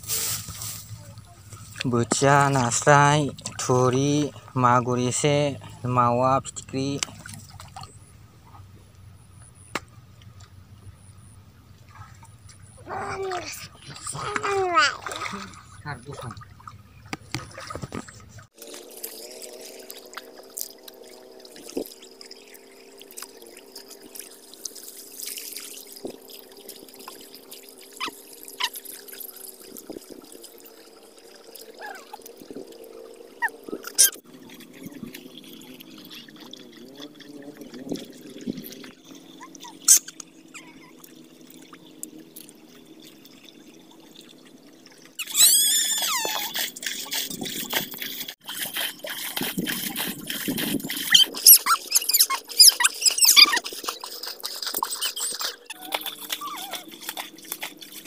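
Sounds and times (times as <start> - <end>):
water scooped and poured with pail: 0.0 - 1.8, 23.0 - 30.7, 45.2 - 58.0
water trickling: 0.0 - 58.0
squeaking: 51.1 - 53.6.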